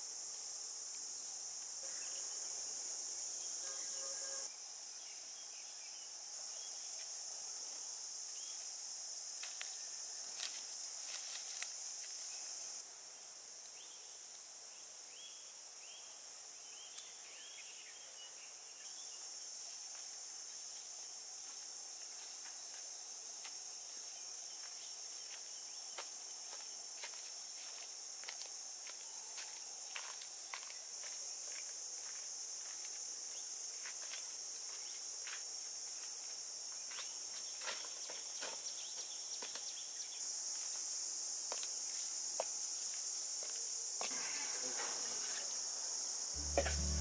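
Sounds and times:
insects chirring: 0.0s - 47.0s.

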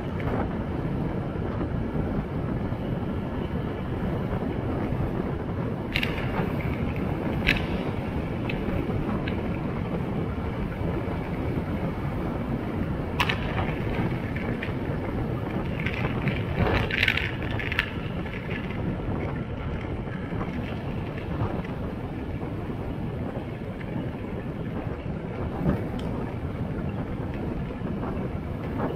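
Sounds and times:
road rumble: 0.0s - 28.9s
wind buffeting microphone: 0.0s - 28.9s
small rattling ticks: 5.9s - 9.6s, 13.2s - 21.8s.

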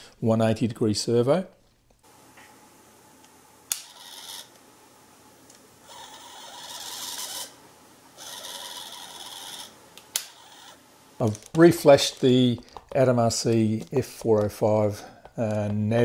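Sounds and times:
servo whirring: 5.8s - 7.6s, 8.2s - 10.8s.

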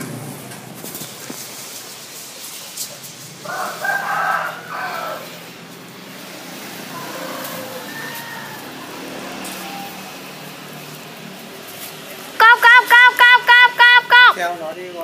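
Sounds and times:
rooster crowing: 3.4s - 5.5s, 6.9s - 10.1s.

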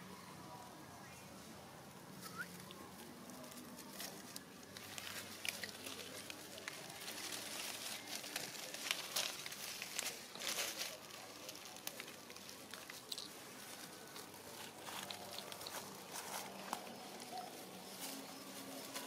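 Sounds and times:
dry leaves crackling and rustling: 2.1s - 19.0s.

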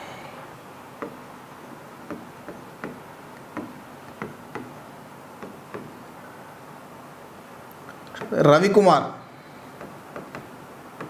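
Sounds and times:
stylus tapping on glass screen: 1.0s - 1.2s, 2.0s - 4.8s, 5.4s - 6.0s, 9.7s - 11.0s.

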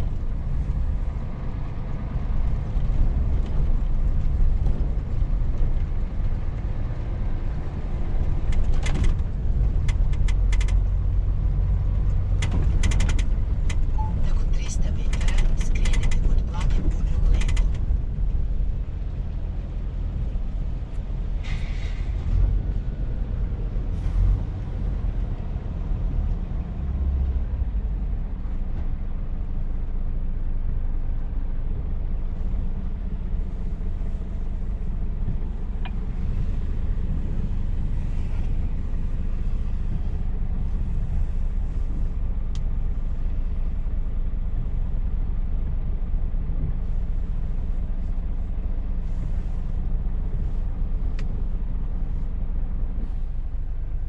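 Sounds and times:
truck engine rumble: 0.0s - 54.0s.

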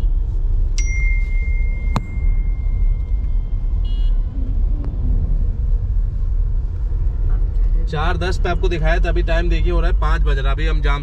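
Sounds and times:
low car cabin rumble: 0.0s - 11.0s
faint thin high tone: 0.8s - 3.5s.

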